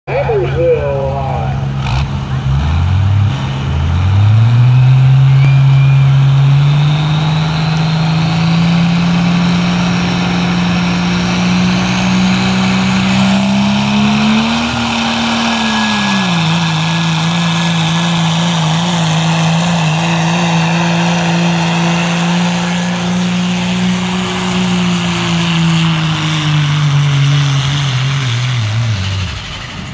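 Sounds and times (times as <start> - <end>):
diesel engine at full throttle: 0.1 - 29.9
high turbo whistle: 5.3 - 8.2.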